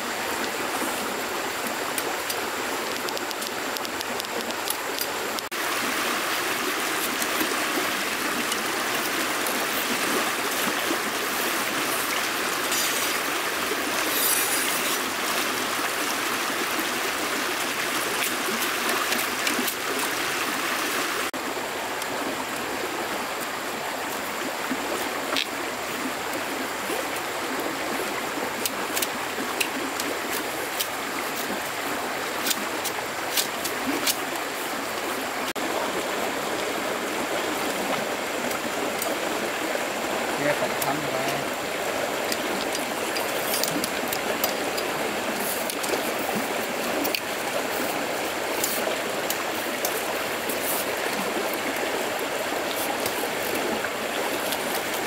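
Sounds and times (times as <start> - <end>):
running water rushing: 0.0 - 55.0
small clicks and taps: 2.2 - 5.5.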